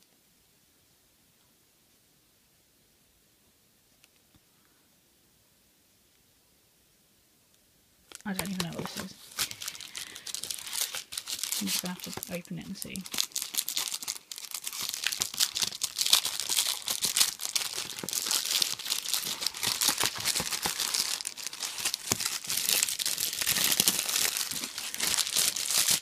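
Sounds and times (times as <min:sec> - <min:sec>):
plastic wrapping crinkling and tearing: 0:08.1 - 0:26.0.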